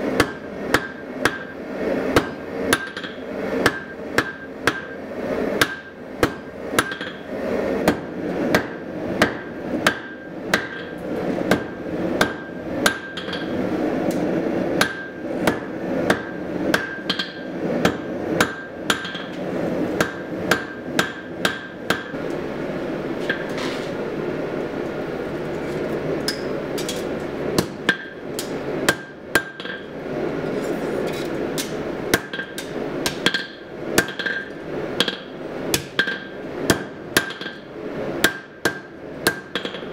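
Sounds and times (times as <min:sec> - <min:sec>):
hammer striking metal on anvil: 0:00.2 - 0:01.5, 0:02.2 - 0:05.0, 0:05.6 - 0:07.2, 0:07.9 - 0:13.6, 0:14.8 - 0:19.4, 0:20.0 - 0:22.2, 0:27.6 - 0:29.9, 0:31.6 - 0:39.9.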